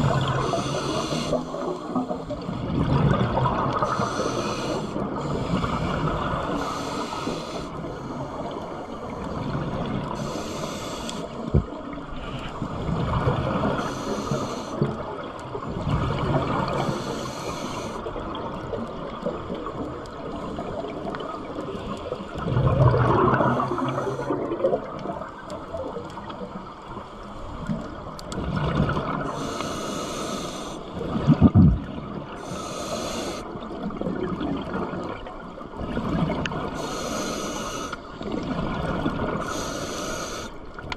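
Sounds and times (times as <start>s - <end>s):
exhaled air bubbling: 0.0s - 10.5s, 11.2s - 26.8s, 30.8s - 37.4s
regulator inhalation hiss: 0.2s - 2.3s, 3.8s - 5.9s, 6.5s - 9.1s, 10.2s - 11.5s, 13.8s - 14.8s, 16.7s - 18.1s, 29.3s - 30.9s, 32.4s - 33.5s, 36.8s - 38.0s, 39.4s - 40.6s.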